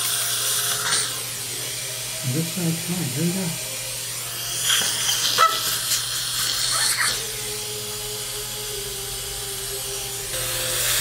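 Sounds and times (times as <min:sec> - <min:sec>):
dental suction hiss: 0:00.0 - 0:01.7, 0:04.4 - 0:07.4.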